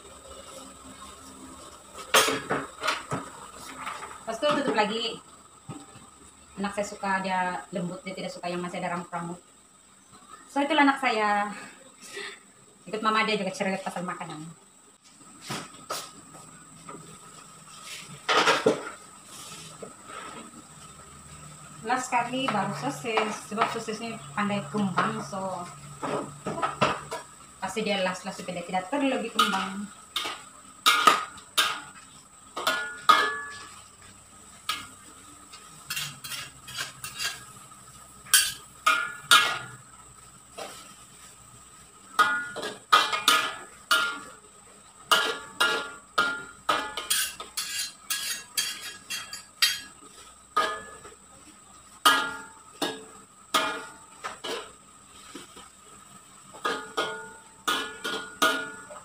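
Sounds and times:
metal spatula clanking on wok: 0:29.3 - 0:31.9, 0:32.6 - 0:33.8, 0:35.9 - 0:37.6, 0:38.3 - 0:39.8, 0:42.1 - 0:44.3, 0:45.1 - 0:49.9, 0:50.6 - 0:51.1, 0:52.0 - 0:54.7, 0:56.5 - 0:59.0.

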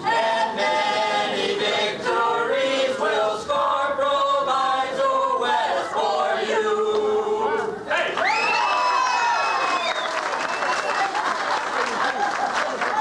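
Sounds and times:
group singing together: 0:00.0 - 0:07.9.

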